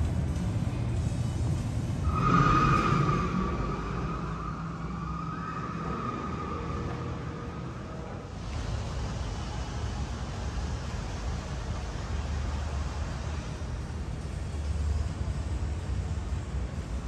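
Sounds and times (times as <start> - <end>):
low rumble of a large hall: 0.0 - 17.0
rushing noise with high whine: 0.0 - 17.0.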